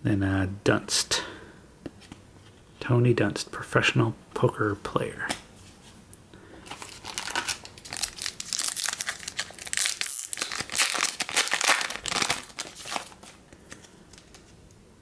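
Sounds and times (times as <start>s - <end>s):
foil wrapper tearing and crinkling: 6.7s - 14.5s.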